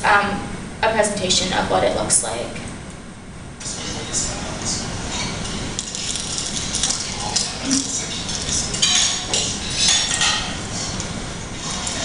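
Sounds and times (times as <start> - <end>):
pastry crust crackling: 5.1 - 12.0
spoon clinking against bowl: 5.4 - 10.6.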